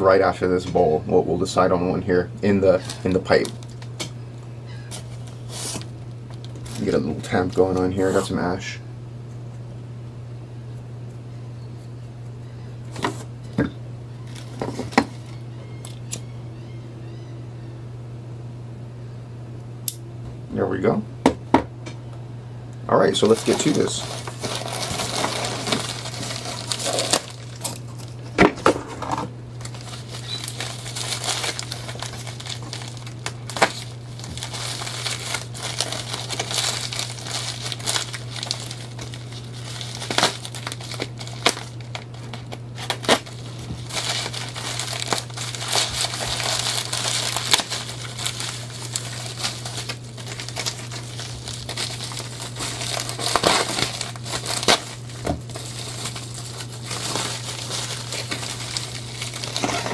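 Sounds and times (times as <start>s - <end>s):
steady low hum: 0.0s - 59.9s
packaging crinkling and rustling: 1.5s - 8.6s, 14.2s - 16.0s, 23.0s - 59.9s.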